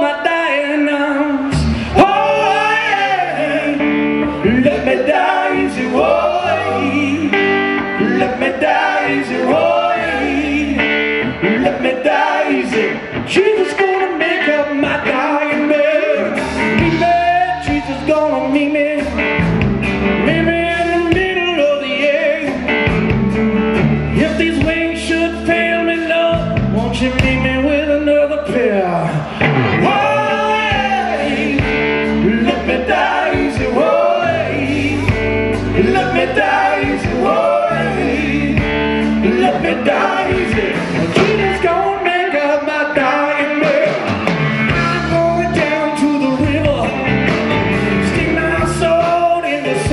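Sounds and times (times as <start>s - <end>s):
man singing: 0.0s - 19.5s, 20.1s - 23.0s, 24.1s - 47.3s, 48.0s - 49.9s
blues-rock band playing: 0.2s - 49.9s.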